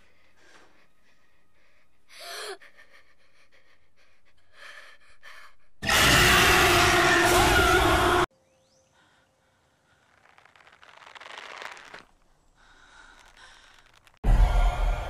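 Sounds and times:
faint breaths: 0:00.0 - 0:05.8, 0:08.8 - 0:10.4, 0:12.2 - 0:14.2
jump-scare shriek over harsh noise: 0:05.8 - 0:08.3
small rustles: 0:09.8 - 0:14.2.

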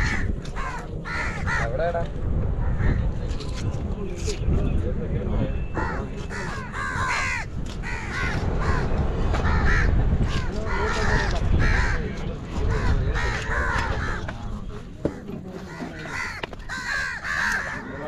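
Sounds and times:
crows cawing: 0:00.0 - 0:01.8, 0:05.8 - 0:12.1, 0:12.7 - 0:14.4, 0:15.0 - 0:18.0.

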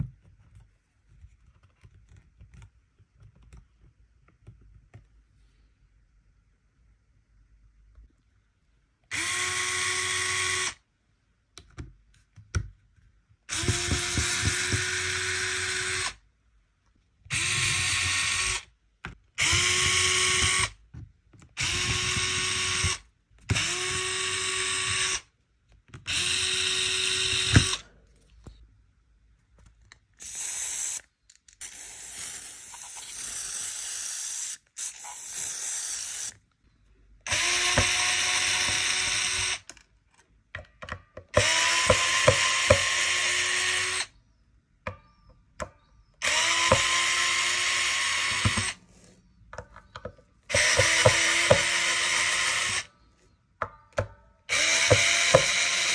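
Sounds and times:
electric drill whining in bursts: 0:26.1 - 0:27.8, 0:37.3 - 0:39.7, 0:41.4 - 0:44.1, 0:46.2 - 0:48.8, 0:50.5 - 0:52.9, 0:54.5 - 0:55.9.

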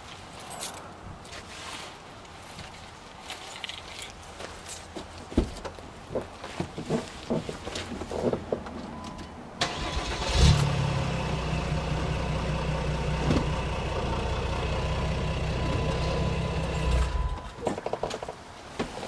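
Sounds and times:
vehicle engine idling: 0:09.6 - 0:17.6.

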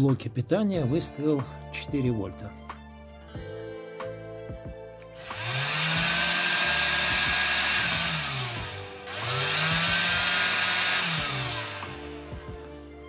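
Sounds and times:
small motor and fan whining: 0:05.2 - 0:12.6.

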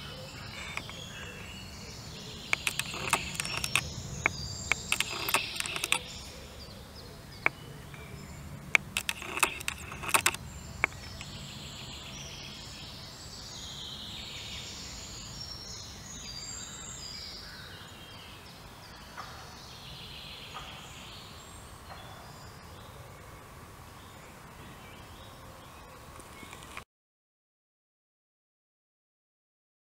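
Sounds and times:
faint birdsong: 0:00.0 - 0:26.8
sharp clicks: 0:00.4 - 0:01.5, 0:02.5 - 0:06.1, 0:07.4 - 0:11.4, 0:26.2 - 0:26.8.

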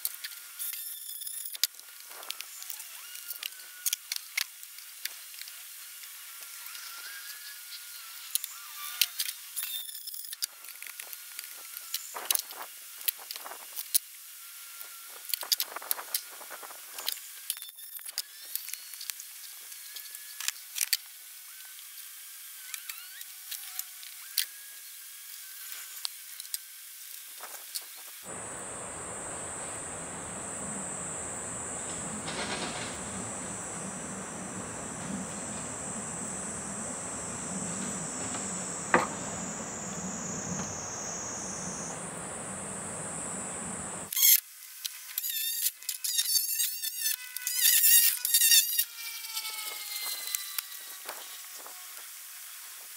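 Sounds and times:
insects shrilling: 0:27.7 - 0:44.4
faint high hiss: 0:28.3 - 0:44.1.

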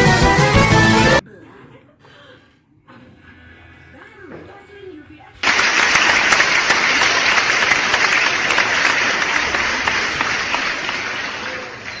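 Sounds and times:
crowd applause: 0:05.4 - 0:12.0.

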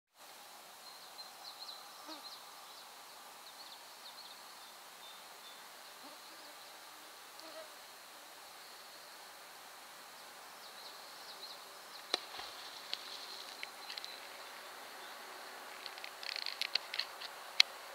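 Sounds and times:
steady hiss: 0:00.2 - 0:17.9.

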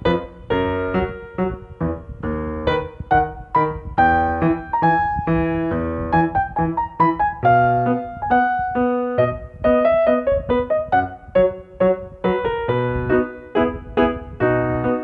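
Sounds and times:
light piano melody: 0:00.0 - 0:15.0.

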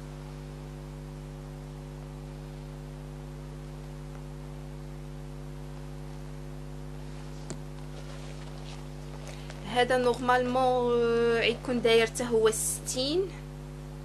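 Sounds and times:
electrical hum: 0:00.0 - 0:14.0
constant hiss: 0:05.7 - 0:14.0.

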